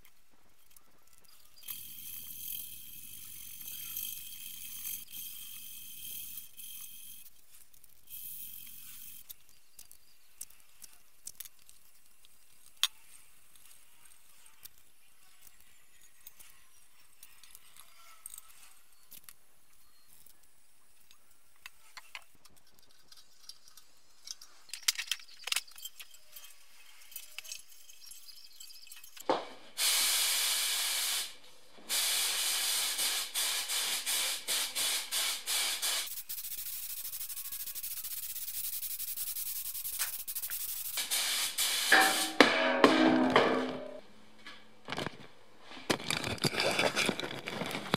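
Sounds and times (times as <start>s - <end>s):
paint spray gun hissing: 29.8s - 42.6s
handling clicks and knocks: 44.8s - 47.9s.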